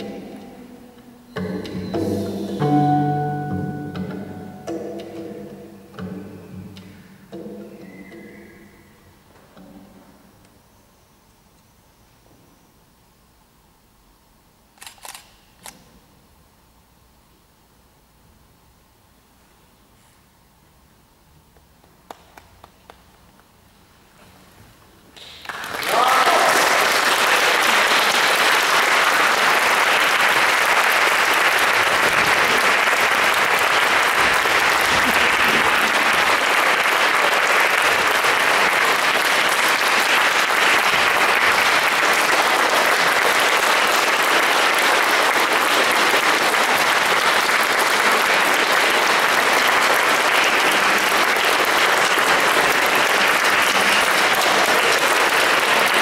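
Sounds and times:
audience applause: 25.2s - 56.0s.

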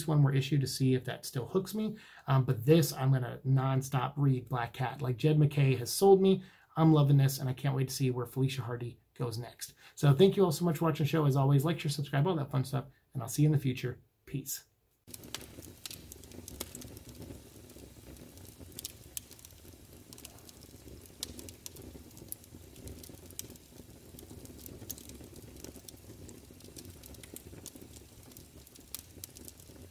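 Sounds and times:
sharp crackles and clicks: 15.1s - 29.9s.

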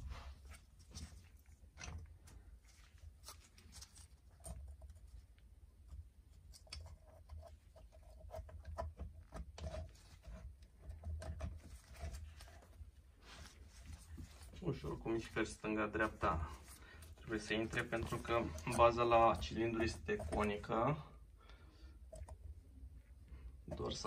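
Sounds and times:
small metal clicks and rubbing: 3.2s - 12.5s.

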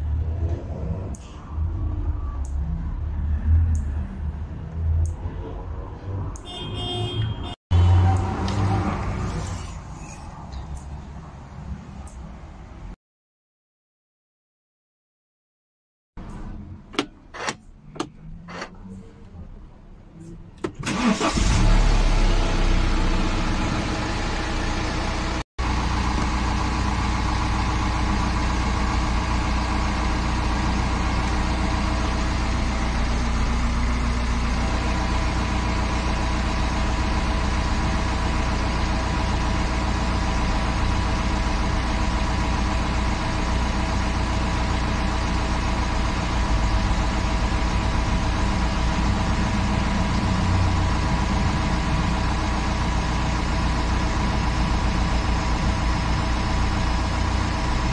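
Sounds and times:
diesel engine idling: 20.8s - 57.9s.

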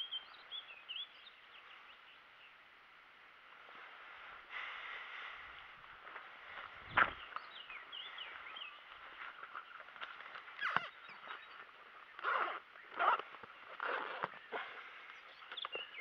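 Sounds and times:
small birds chirping: 0.0s - 2.8s, 3.8s - 16.0s
bag rustling and handling: 8.3s - 15.2s.

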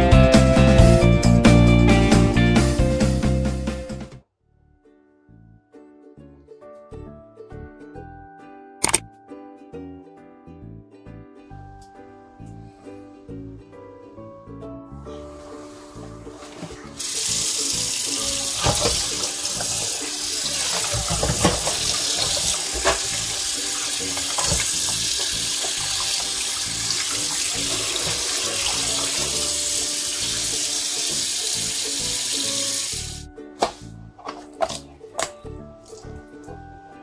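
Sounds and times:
tap water running into metal bowl: 17.0s - 33.2s.

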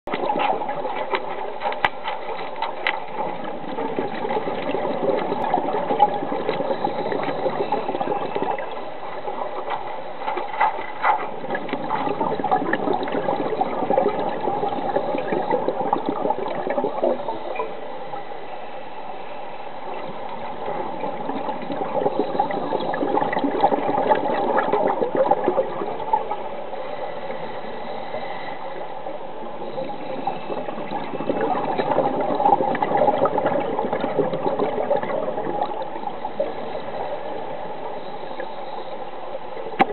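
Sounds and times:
clicks and crackles: 0.1s - 14.4s, 39.7s - 39.9s
faint steady hum: 0.1s - 39.9s
underwater rushing and bubbling: 0.1s - 39.9s.

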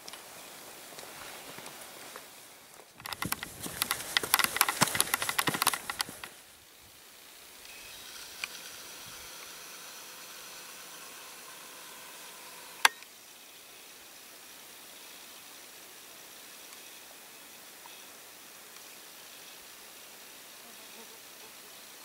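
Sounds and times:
faint outdoor background: 0.0s - 22.0s
gear brushing microphone: 3.0s - 6.3s
sharp click: 3.0s - 6.3s
boots crunching on gravel: 3.0s - 6.4s.

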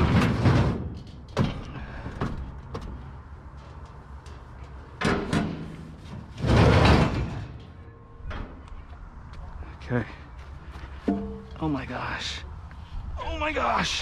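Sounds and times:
scrap metal clattering: 0.0s - 2.2s, 3.6s - 8.5s.

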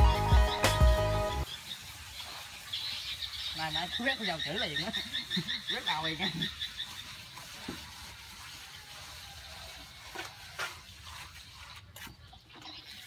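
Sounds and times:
trowel scraping wet cement: 4.0s - 13.0s.

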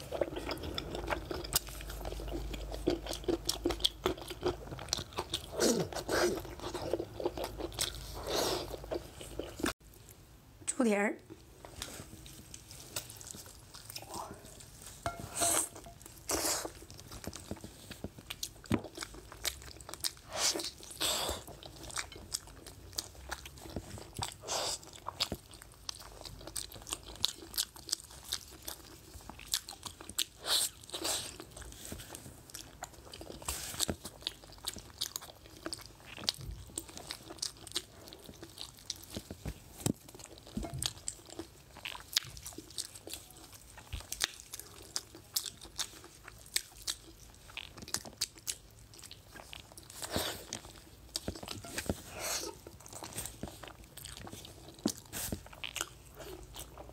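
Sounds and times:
person chewing wet smacks: 15.7s - 56.9s.

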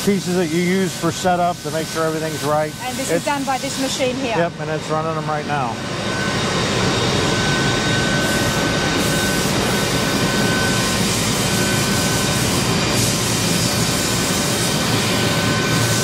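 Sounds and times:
machine and coolant spray noise: 0.0s - 16.0s
thin steady whine: 0.0s - 16.0s.

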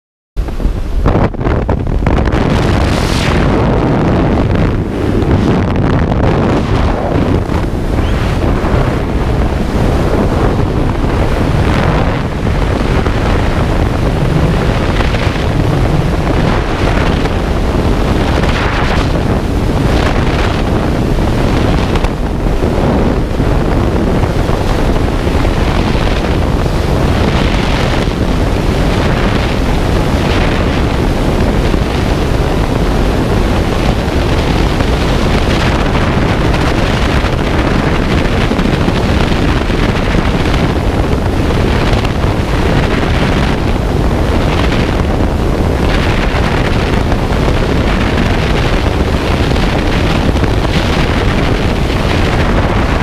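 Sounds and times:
wind buffeting microphone: 0.4s - 53.0s.

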